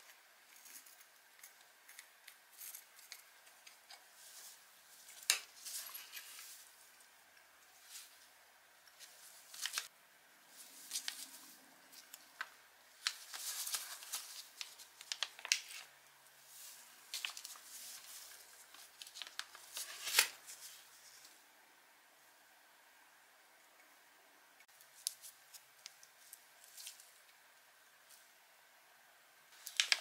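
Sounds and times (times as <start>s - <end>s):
paper rustling: 9.0s - 9.9s, 10.5s - 15.9s, 16.5s - 21.3s.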